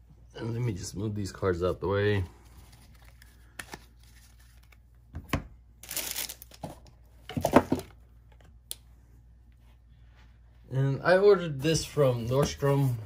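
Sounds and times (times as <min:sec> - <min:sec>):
cards rustling on cloth mat: 0:02.3 - 0:04.9.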